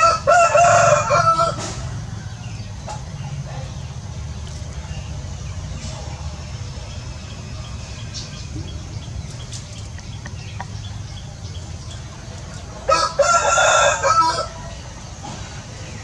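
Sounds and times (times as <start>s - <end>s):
rooster crowing: 0.0s - 2.6s, 12.8s - 14.7s.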